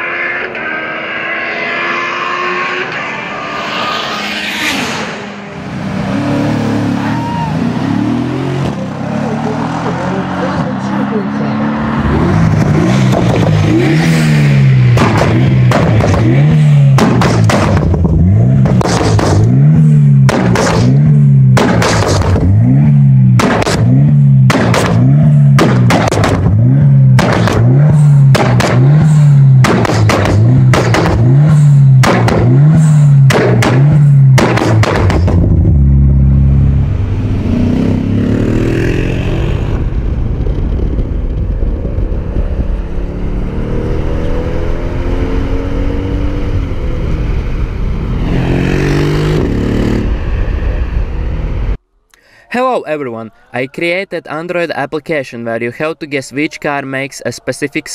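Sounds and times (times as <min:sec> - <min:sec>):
car engine accelerating: 0:00.0 - 0:52.1
car engine revving: 0:00.0 - 0:52.1
exhaust bangs and pops: 0:12.4 - 0:36.1.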